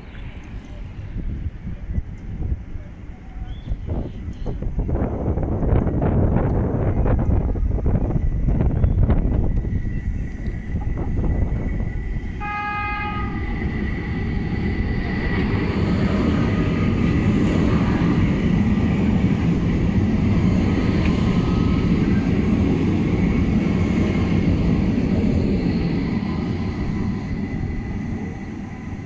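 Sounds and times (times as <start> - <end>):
train rumbling past: 0.0 - 29.0
train horn signal: 12.3 - 13.7.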